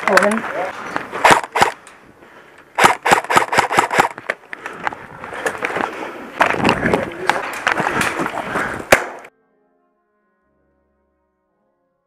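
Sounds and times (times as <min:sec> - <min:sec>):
airsoft rifle shots: 0:01.2 - 0:01.8, 0:02.8 - 0:04.2, 0:08.9 - 0:09.3.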